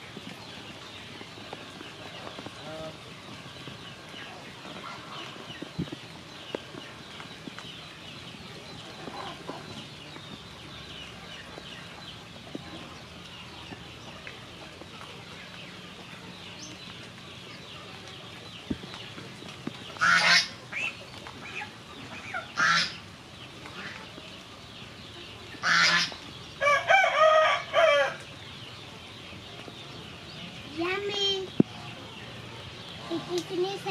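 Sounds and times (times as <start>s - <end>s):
farmyard fowl calling: 20.0s - 23.1s, 25.6s - 28.3s.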